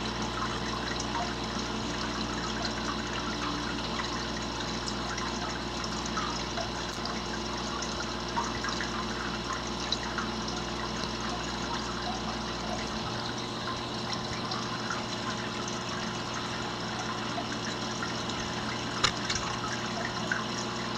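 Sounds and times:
water trickling: 0.0s - 20.9s
small clicks: 19.0s - 19.6s.

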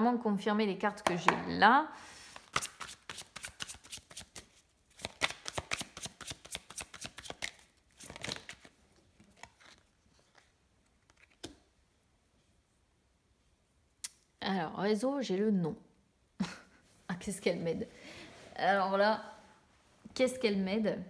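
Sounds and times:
cards being shuffled: 2.3s - 11.7s.

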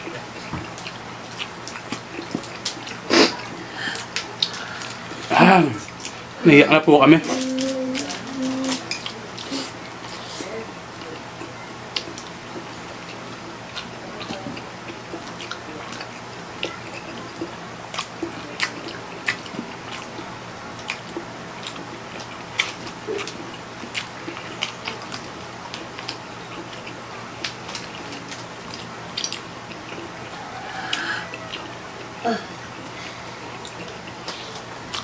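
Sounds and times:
chewing and slurping noodles: 7.2s - 35.0s.

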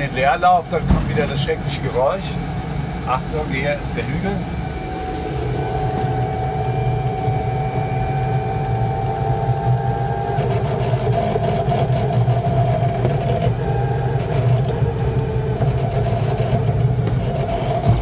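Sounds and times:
drivetrain hum and whine: 0.0s - 18.0s
gearbox clattering and grinding: 5.6s - 18.0s.

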